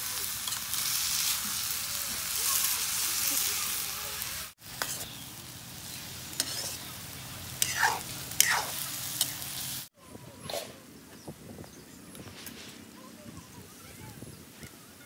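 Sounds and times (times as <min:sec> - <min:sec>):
vegetables sizzling in a wok: 0:00.0 - 0:09.9
metal spatula scraping a wok: 0:04.8 - 0:05.2, 0:06.0 - 0:06.9, 0:07.6 - 0:09.4.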